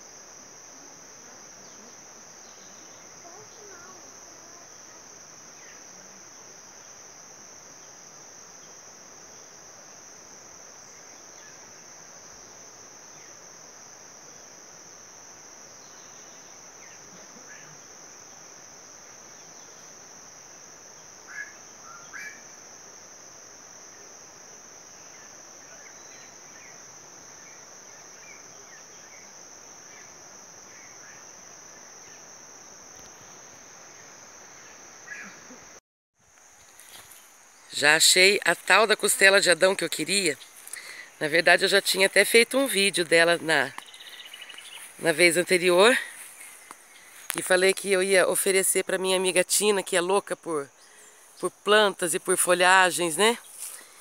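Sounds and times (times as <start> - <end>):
insects shrilling drone: 0.0 - 54.0.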